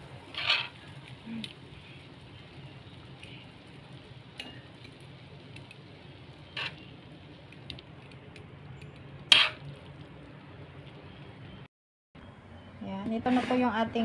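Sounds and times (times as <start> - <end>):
spatula scraping a wok: 0.3 - 0.9, 6.5 - 6.9, 9.3 - 9.7.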